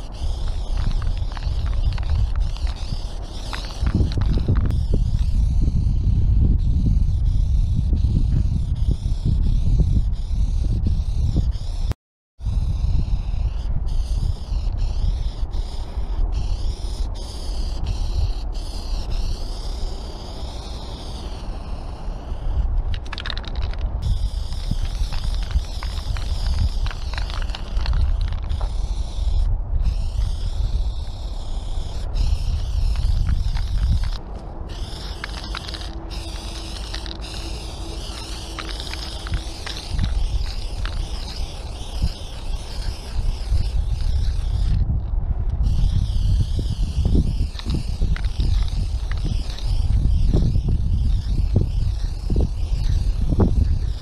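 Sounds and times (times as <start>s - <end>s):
spray paint can hissing: 0.0s - 12.0s, 12.6s - 54.0s
low wind rumble on microphone: 0.0s - 54.0s
mixing ball rattling in can: 22.9s - 28.6s, 32.9s - 41.5s.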